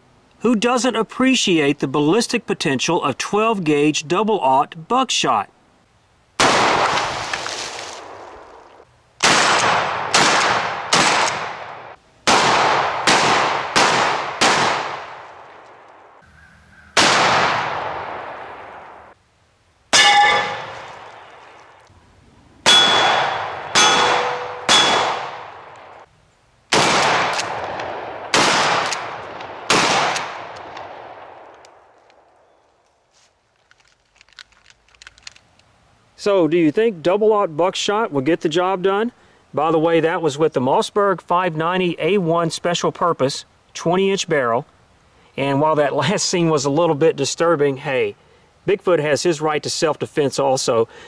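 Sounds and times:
shotgun shots echoing: 6.4s - 7.1s, 9.2s - 15.6s, 17.0s - 19.1s, 22.6s - 26.0s, 26.7s - 31.7s
metallic ring: 20.0s - 20.8s, 22.7s - 25.0s.

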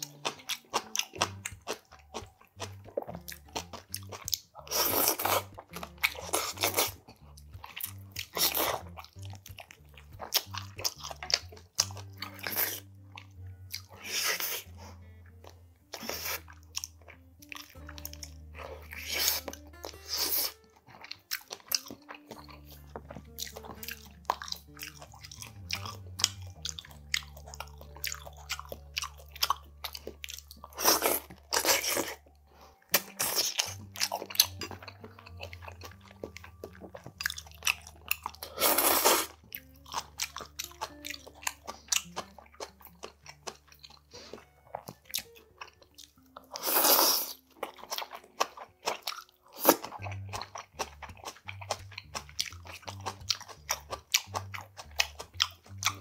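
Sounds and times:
crunching and chewing: 0.0s - 56.0s
wet mouth clicks: 32.8s - 45.0s
loud slurps: 38.4s - 39.3s, 46.6s - 47.4s.

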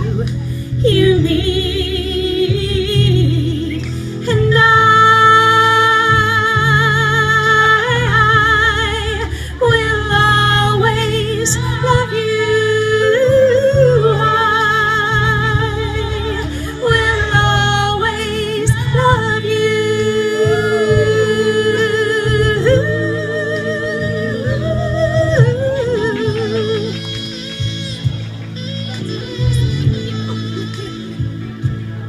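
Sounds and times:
woman singing with vibrato: 0.0s - 27.3s
amplified accompaniment: 0.0s - 32.0s.

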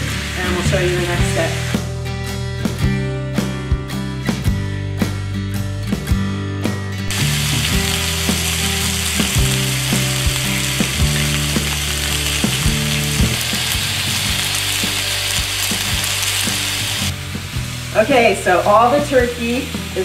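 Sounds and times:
meat and onion sizzling in a skillet: 0.0s - 1.9s, 7.1s - 20.0s.

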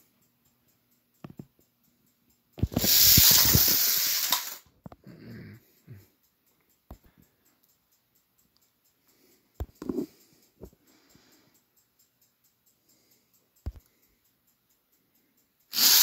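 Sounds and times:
toy trains rattling down track: 2.6s - 4.7s, 14.2s - 16.0s.

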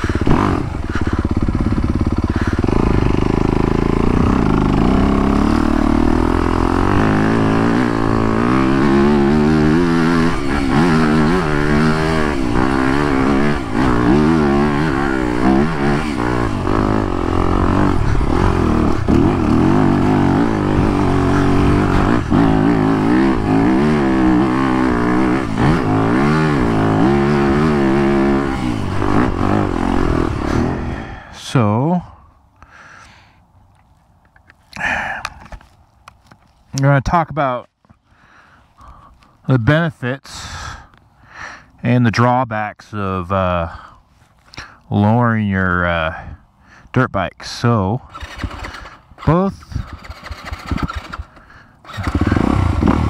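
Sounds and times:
motorcycle engine revving: 0.0s - 31.3s, 48.1s - 53.0s.

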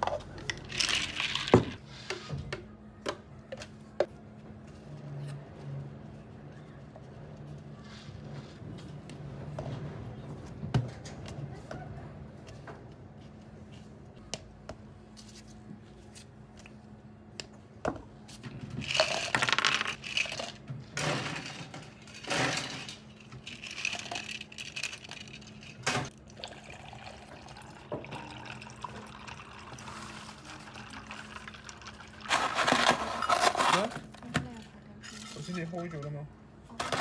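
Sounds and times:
plastic cups clicking and knocking: 0.0s - 1.8s, 18.8s - 20.6s, 22.9s - 25.8s
liquid pouring: 26.1s - 32.3s.

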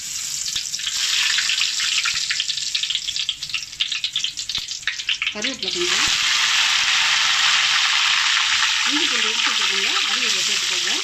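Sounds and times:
spices frying in hot oil: 0.0s - 11.0s.

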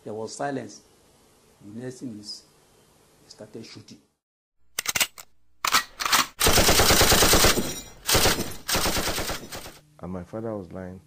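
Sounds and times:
machine-gun fire: 6.1s - 9.8s.

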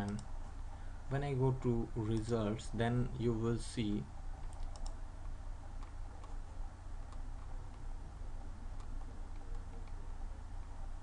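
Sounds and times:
computer mouse clicks: 0.0s - 0.3s, 4.4s - 6.4s, 7.0s - 7.9s, 8.7s - 10.0s
low electrical hum: 0.0s - 11.0s.

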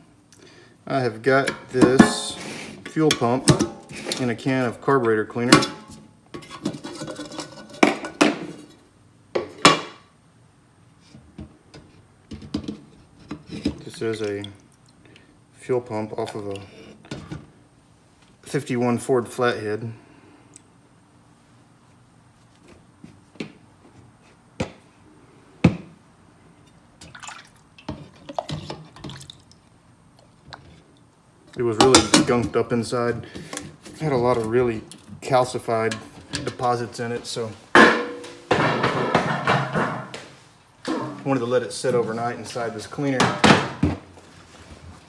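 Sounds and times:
liquid sloshing and dripping: 13.6s - 15.3s, 27.0s - 31.1s.

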